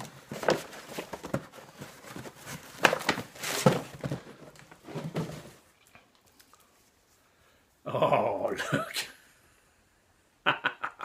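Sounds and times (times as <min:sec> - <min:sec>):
packaging rustling and crinkling: 0:00.0 - 0:06.6.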